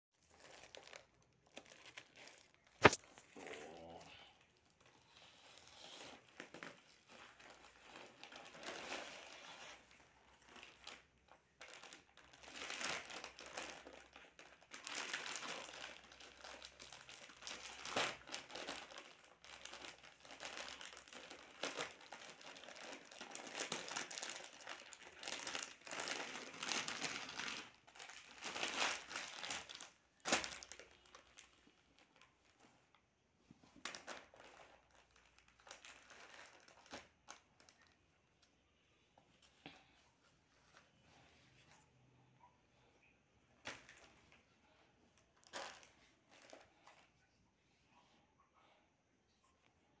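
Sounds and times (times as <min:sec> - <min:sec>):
plastic packaging crinkling: 0:00.2 - 0:03.4, 0:06.2 - 0:33.0, 0:33.8 - 0:38.0, 0:45.4 - 0:47.0.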